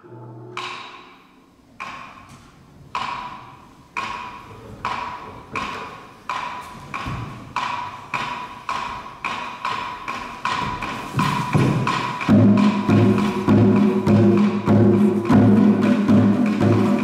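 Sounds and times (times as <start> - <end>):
sharp pitched percussion strikes: 9.8 - 17.0.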